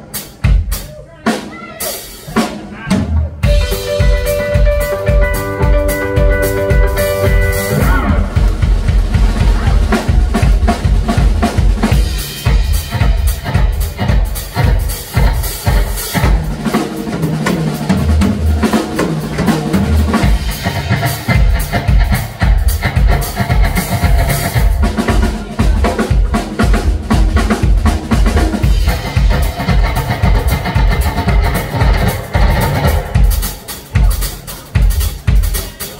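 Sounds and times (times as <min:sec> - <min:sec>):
drum kit kick and snare: 0:00.0 - 0:35.9
electric blues band playing: 0:00.0 - 0:35.9
amplified guitar: 0:03.4 - 0:16.6, 0:19.0 - 0:33.8.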